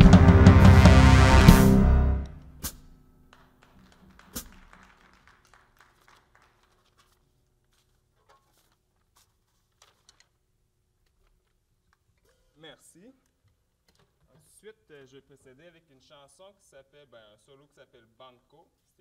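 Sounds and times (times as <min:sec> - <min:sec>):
drum kit ringing: 0:00.0 - 0:03.0.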